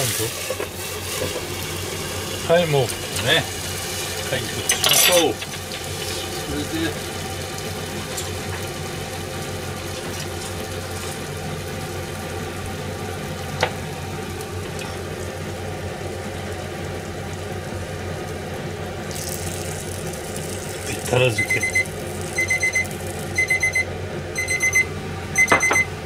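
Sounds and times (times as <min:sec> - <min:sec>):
food sizzling in frying pan: 0:00.0 - 0:24.3
low steady hum: 0:13.8 - 0:26.0.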